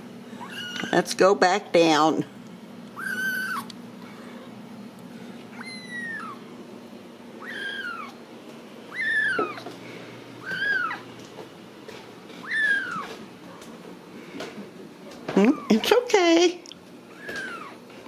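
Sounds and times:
kitten mewing: 0.4 - 1.0, 3.0 - 4.5, 5.5 - 6.4, 7.4 - 8.2, 8.9 - 9.7, 10.4 - 11.1, 12.4 - 13.2, 15.4 - 15.9, 17.1 - 17.8.

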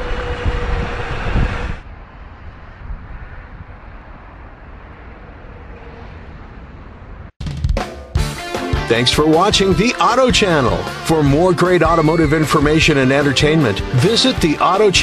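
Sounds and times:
tyre and wind noise: 0.0 - 7.3.

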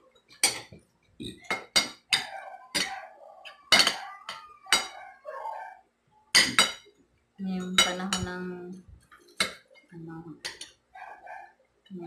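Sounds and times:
cutlery clinking on ceramic plates: 0.4 - 0.8, 1.5 - 5.1, 6.4 - 6.9, 7.6 - 8.4, 9.1 - 9.6, 10.4 - 10.8.

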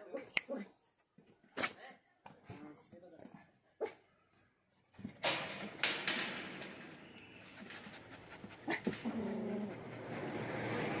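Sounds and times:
dog whining: 7.4 - 10.0
dog panting: 7.6 - 10.4.

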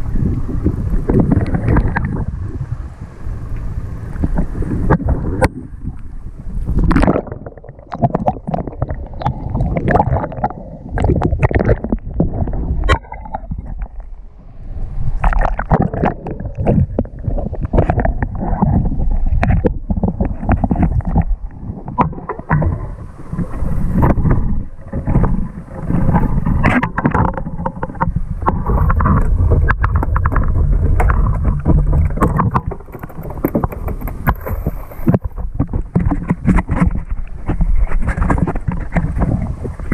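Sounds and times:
low rumble: 0.0 - 36.0
water splashing around a boat: 0.0 - 39.9
knocks and thumps: 26.6 - 39.5.

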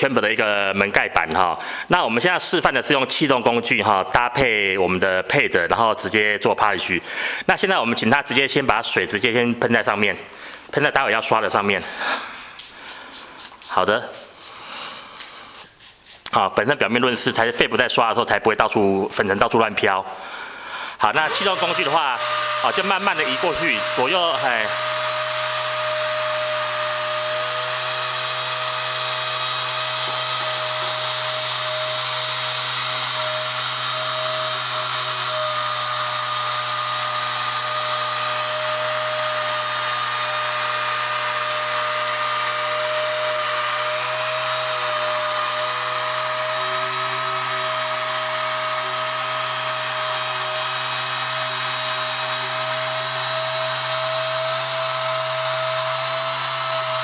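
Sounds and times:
pneumatic polisher whining: 21.2 - 57.0.

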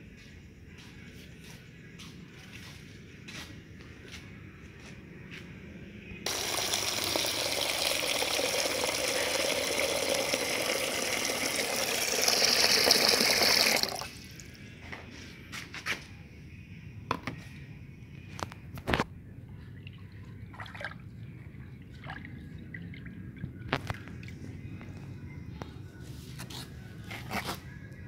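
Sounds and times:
tap water running into pot: 6.3 - 14.2.

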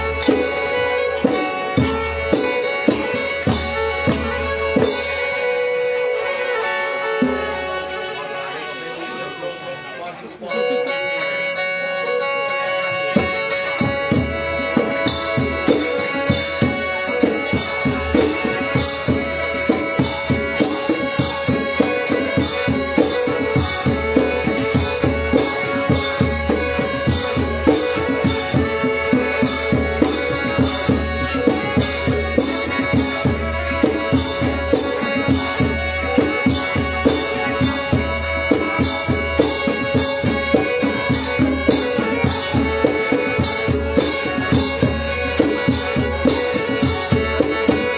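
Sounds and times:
hand drums beating: 0.0 - 7.8, 12.9 - 47.9
steady held melodic tone: 0.0 - 47.9.

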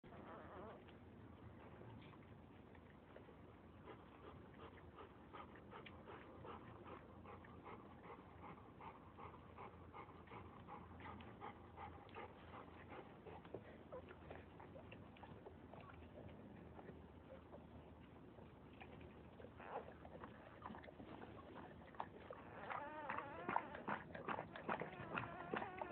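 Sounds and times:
dog panting quickly: 3.7 - 16.3.

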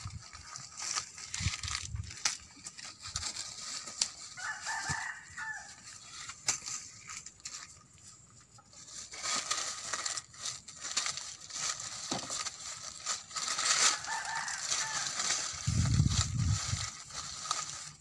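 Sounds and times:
dry maize husks rustling: 0.0 - 18.0
ears snapped off stalks: 1.4 - 2.6, 6.3 - 7.2.

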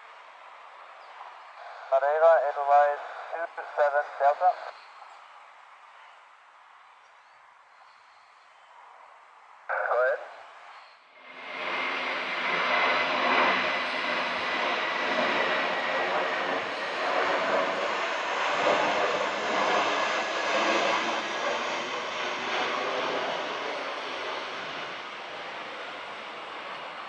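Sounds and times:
jet airliner passing overhead: 0.1 - 4.8, 9.7 - 27.0
high jet whine: 9.7 - 27.0.

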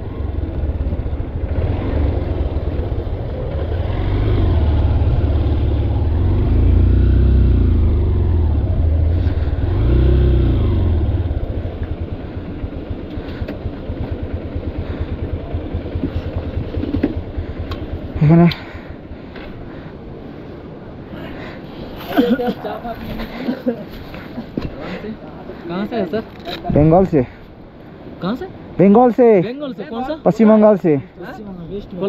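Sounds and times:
motorcycle engine running: 0.0 - 18.5.

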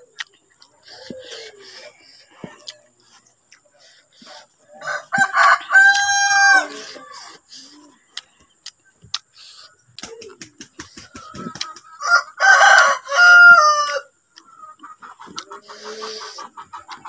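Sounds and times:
chewing and mouth sounds: 0.0 - 4.4, 6.7 - 10.4, 14.3 - 15.6, 16.8 - 17.0
rooster crowing: 4.7 - 7.3, 12.0 - 14.1.

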